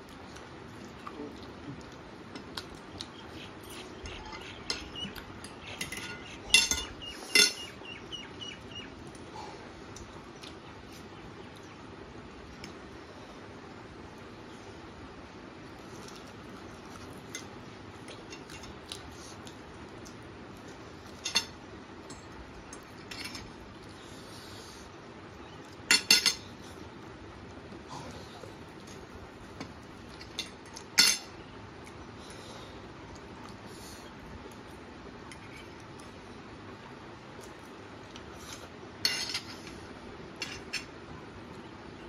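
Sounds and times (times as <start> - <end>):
forks clinking and scraping plates: 4.0 - 7.7, 39.0 - 39.7.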